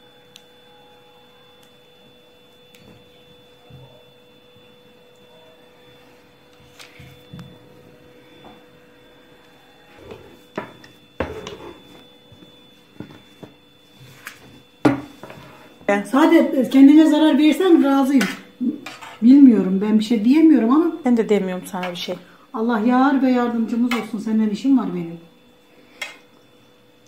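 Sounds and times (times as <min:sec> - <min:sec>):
faint electrical hum: 0:00.0 - 0:27.0.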